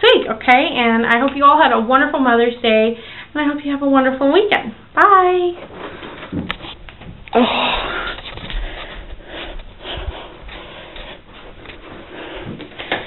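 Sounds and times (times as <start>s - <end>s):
rubbing against microphone: 5.6s - 6.9s, 7.8s - 12.9s
scraping and rustling: 5.6s - 7.2s, 7.8s - 13.0s.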